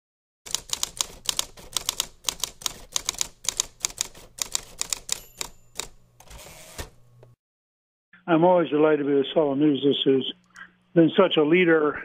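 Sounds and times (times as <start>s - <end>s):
typewriter keys clacking: 0.5s - 6.9s.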